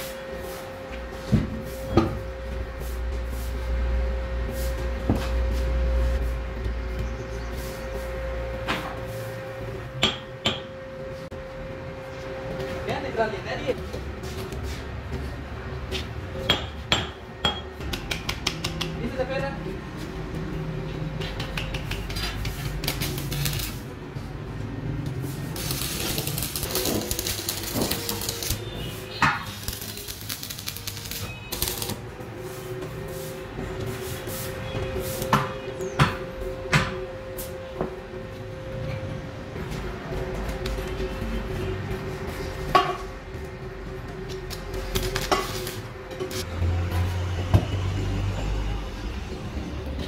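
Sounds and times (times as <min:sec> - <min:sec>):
welding arc crackling: 0:21.6 - 0:24.0, 0:25.2 - 0:32.2, 0:44.4 - 0:46.6.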